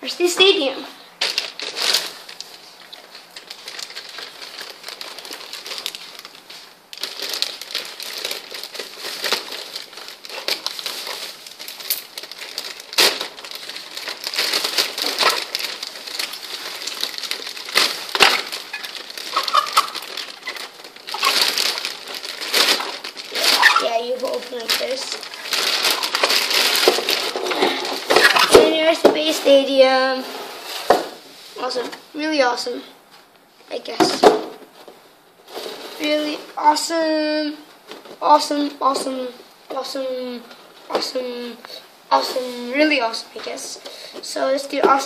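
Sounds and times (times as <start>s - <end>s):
plastic bag crinkling: 0.4s - 30.2s, 35.4s - 39.4s.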